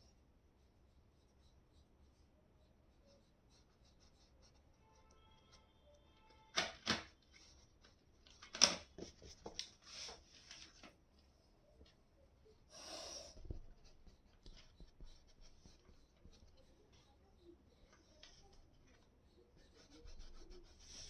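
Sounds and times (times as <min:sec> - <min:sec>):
paintbrush scratching on canvas: 0:00.0 - 0:05.7, 0:13.2 - 0:21.0.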